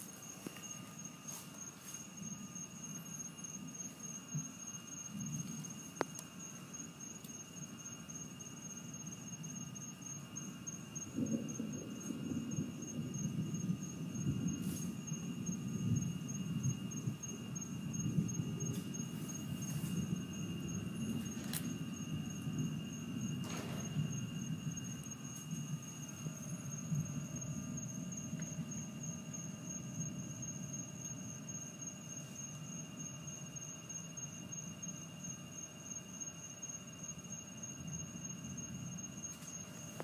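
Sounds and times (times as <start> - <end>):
night insects trilling: 0.0 - 40.0
distant thunder rumbling: 10.3 - 31.5.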